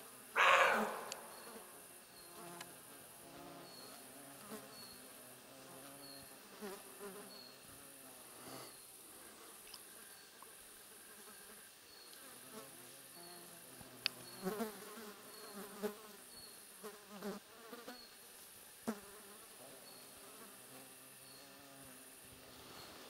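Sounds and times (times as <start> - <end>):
flying insects buzzing: 0.0 - 23.0
high insect hiss: 0.0 - 23.0
sharp clicks: 1.0 - 1.3.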